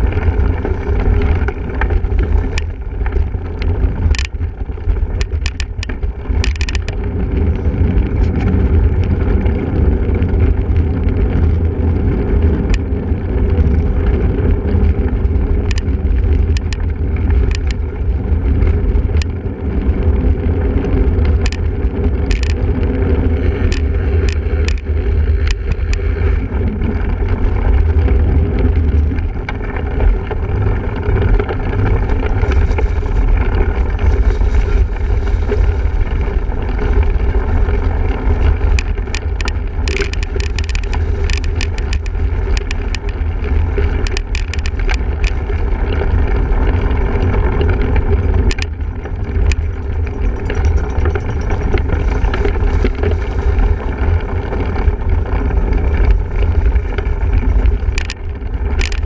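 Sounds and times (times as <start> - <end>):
bike rattling over rough ground: 0.0 - 59.0
wind rumbling on microphone: 0.0 - 59.0
sharp clicks and knocks: 1.2 - 7.1, 15.6 - 17.8, 21.2 - 22.6, 38.5 - 43.2, 43.8 - 45.5, 47.6 - 53.2, 57.7 - 59.0.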